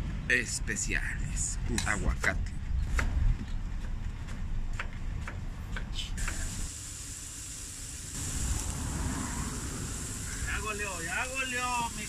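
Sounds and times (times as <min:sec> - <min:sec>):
low rumble of traffic: 0:00.0 - 0:12.0
high sizzling hiss: 0:06.2 - 0:12.0.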